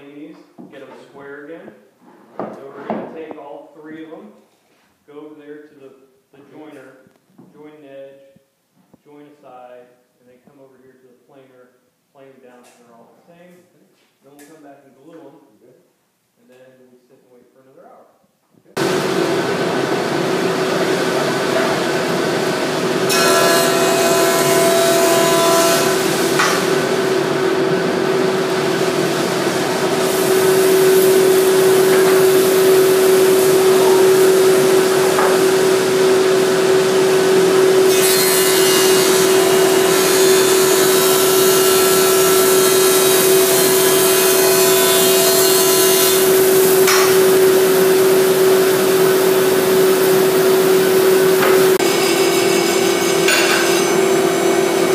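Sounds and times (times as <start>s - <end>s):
jointer cutting wood: 18.8s - 54.9s.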